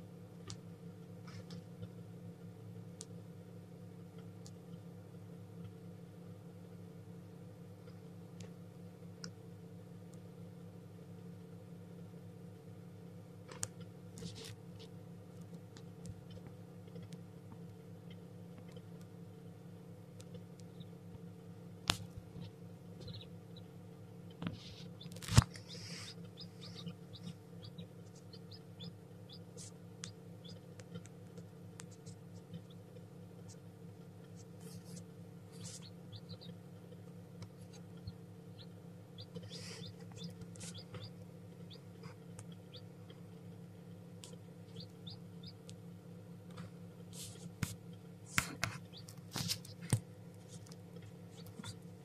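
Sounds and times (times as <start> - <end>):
steady low hum: 0.0 - 52.0
chick peeping: 21.9 - 45.8, 47.2 - 51.9.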